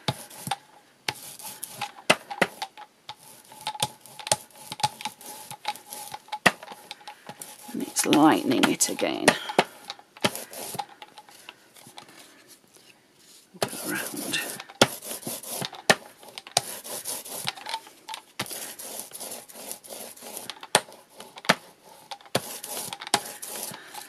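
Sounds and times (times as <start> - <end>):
paint roller rolling on card: 0.0 - 12.5, 13.2 - 24.0.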